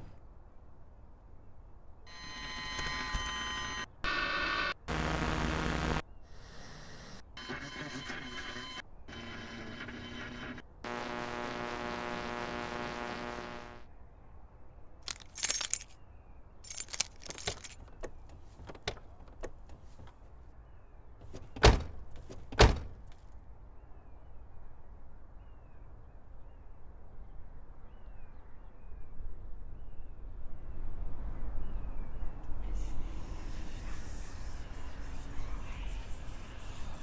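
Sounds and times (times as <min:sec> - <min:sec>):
keys jangling: 0:15.1 - 0:16.0, 0:16.6 - 0:18.0.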